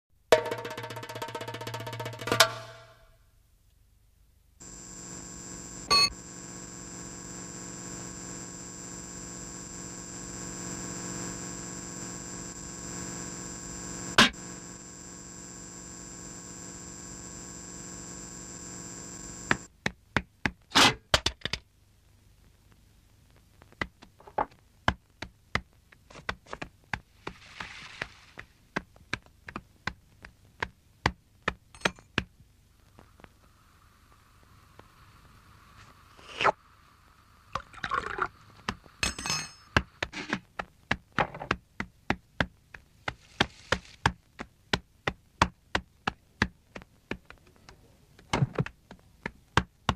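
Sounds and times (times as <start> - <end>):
droning hum of held tones: 4.6 - 19.7
sharp clicks and taps: 23.5 - 27.0, 28.7 - 32.4, 39.8 - 49.9.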